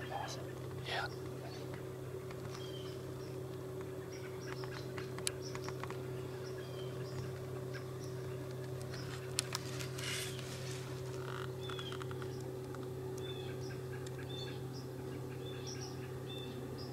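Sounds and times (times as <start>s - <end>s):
steady low hum: 0.0s - 16.9s
small clicks and ticks: 4.5s - 6.0s, 8.4s - 10.0s, 11.1s - 13.3s.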